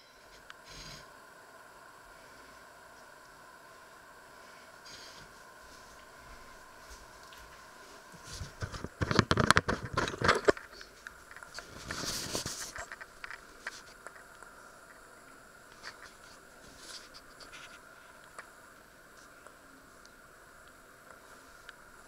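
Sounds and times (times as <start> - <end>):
camera handling knocks and scrapes: 8.6 - 10.6.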